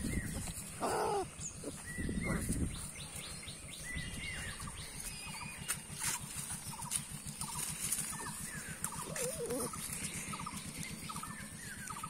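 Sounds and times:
small birds chirping: 0.0 - 12.0
puppy whining yelps: 0.8 - 2.5, 9.0 - 9.8.

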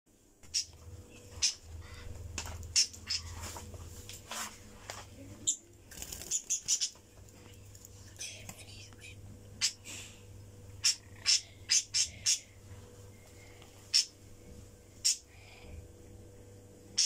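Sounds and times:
low steady hum: 0.1 - 17.0
budgerigars chirping: 0.5 - 0.7, 2.7 - 3.4, 6.3 - 7.0, 10.8 - 12.5, 13.9 - 14.1, 15.0 - 15.2.

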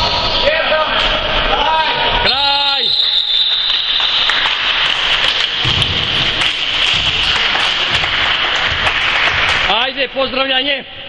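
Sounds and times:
crowd applauding: 3.4 - 10.2.

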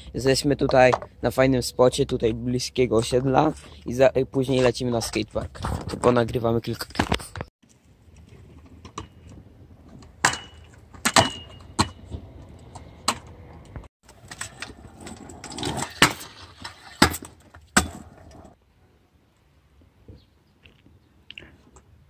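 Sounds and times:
scooter wheels rolling on bricks: 4.4 - 18.6
scooter deck clacking on ground: 8.2 - 18.6.

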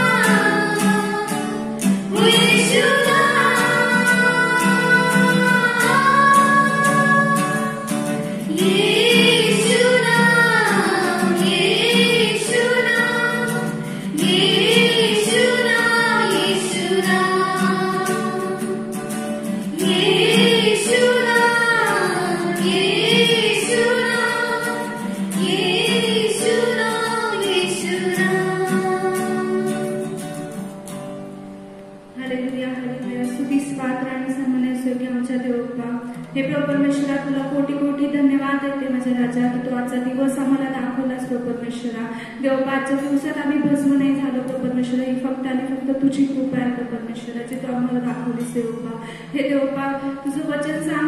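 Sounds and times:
women singing a worship song: 0.0 - 19.0, 19.6 - 30.1.

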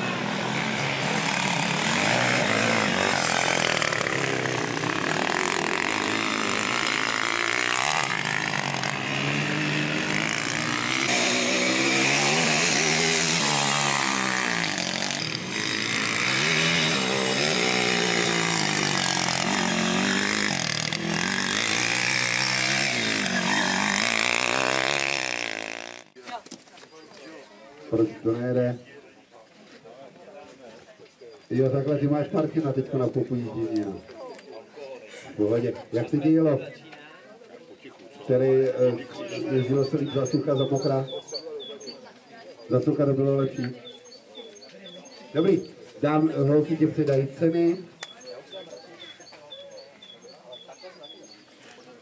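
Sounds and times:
quad engine revving: 0.0 - 26.2.

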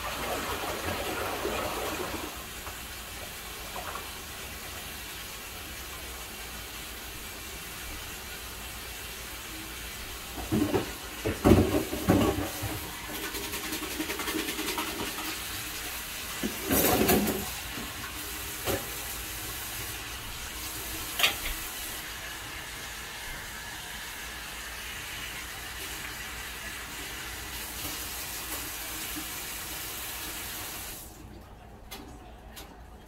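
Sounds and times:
food sizzling in pot: 14.2 - 31.0.

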